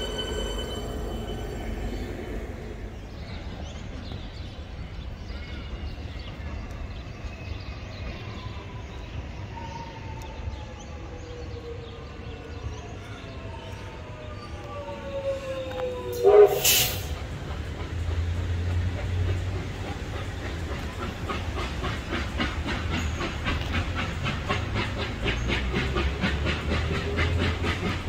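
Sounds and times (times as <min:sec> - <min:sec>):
distant train rumbling: 0:00.0 - 0:28.0.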